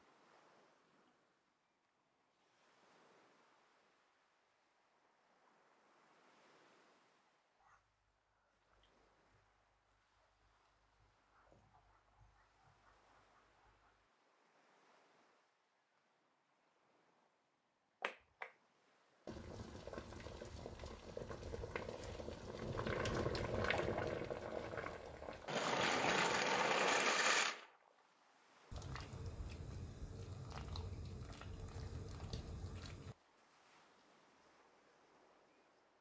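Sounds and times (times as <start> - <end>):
pot of water boiling: 19.3 - 27.6, 28.7 - 33.2.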